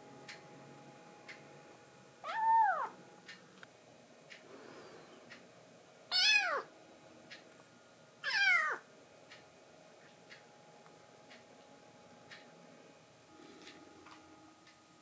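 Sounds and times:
kitten meowing: 2.2s - 3.0s, 6.1s - 6.7s, 8.2s - 8.8s.

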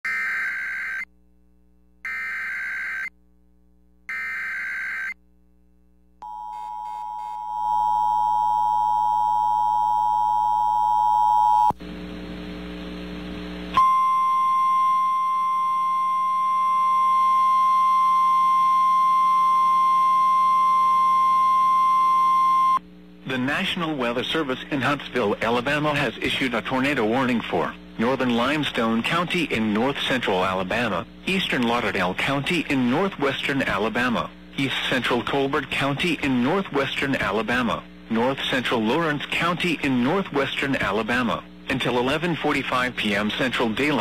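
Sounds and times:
steady warning alarm tone: 4.1s - 5.2s, 13.8s - 22.8s
radio static: 23.2s - 44.0s.

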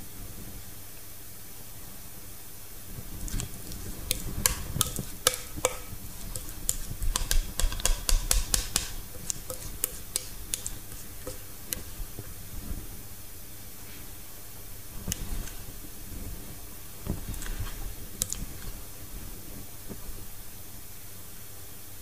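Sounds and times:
metal spoon scraping a bowl: 3.2s - 12.1s.

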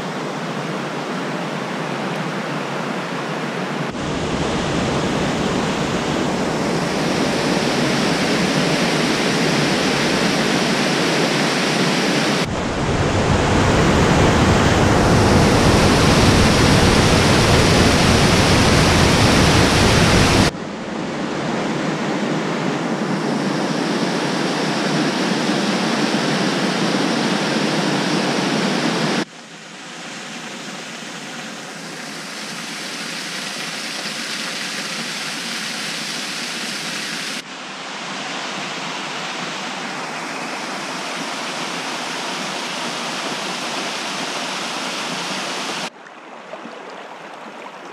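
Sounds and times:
waterfall rushing: 3.9s - 20.6s, 38.5s - 45.9s.

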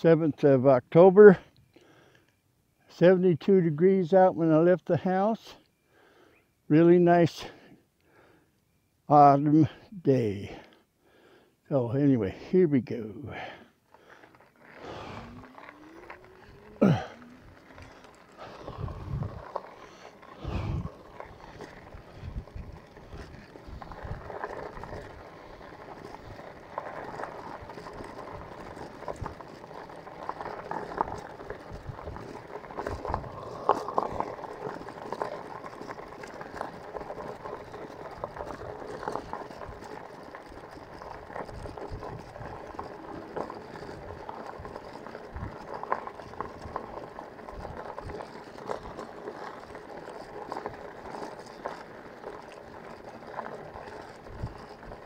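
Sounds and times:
bicycle tyres on gravel: 9.1s - 55.0s.

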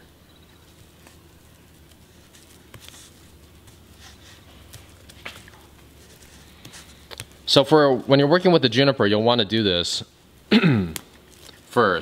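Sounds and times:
low steady hum: 0.0s - 12.0s
foliage clicks and rustles: 0.2s - 7.5s, 11.0s - 12.0s.

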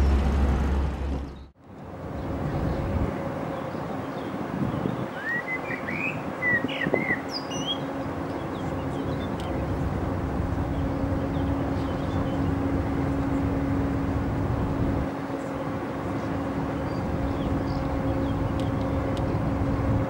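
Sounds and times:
ship diesel engine humming: 0.0s - 20.0s
wind rumbling on microphone: 0.0s - 20.0s.

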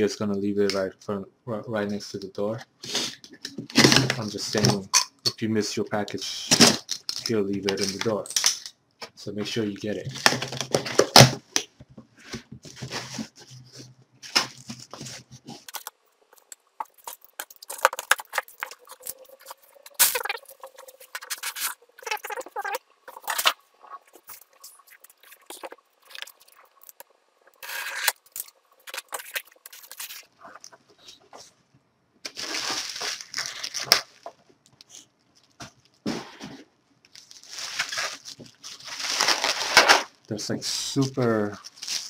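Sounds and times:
cardboard rustling and scraping: 12.1s - 15.8s
packing tape pulled: 37.1s - 40.1s.

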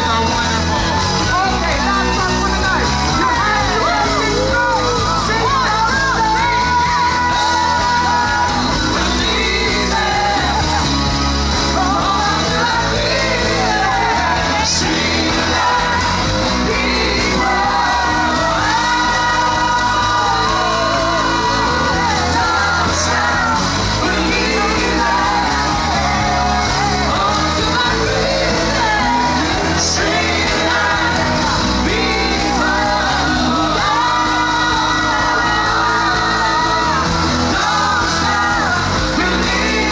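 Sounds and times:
pop-rock song with singer: 0.0s - 39.9s.

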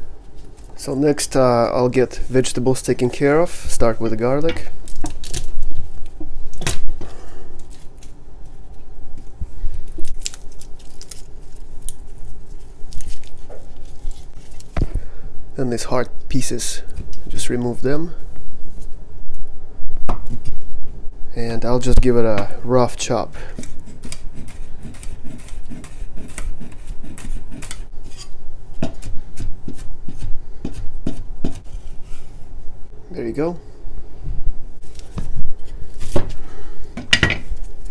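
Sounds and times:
garlic skins crackling: 3.7s - 6.8s, 7.6s - 14.8s
knife chopping on wooden board: 28.8s - 31.6s.

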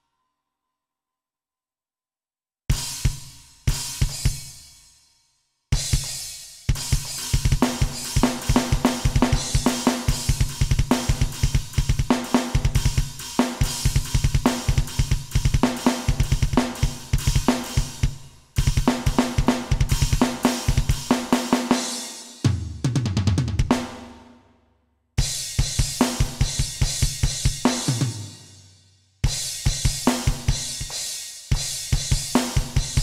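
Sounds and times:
electronic drum kit playing metal: 5.8s - 24.2s, 25.2s - 28.5s, 29.3s - 33.0s.

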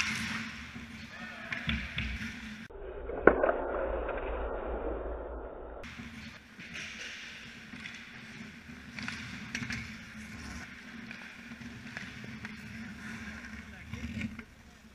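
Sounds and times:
hockey sticks and puck clicking: 0.0s - 2.5s, 6.2s - 14.9s
skate blades scraping ice: 0.0s - 2.6s, 5.9s - 14.9s.

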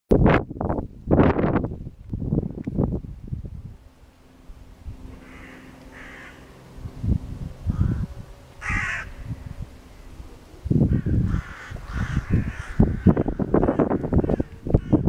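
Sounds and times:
wind rumble on microphone: 0.1s - 15.0s
crows cawing: 5.2s - 6.6s, 7.7s - 9.4s, 10.9s - 15.0s.

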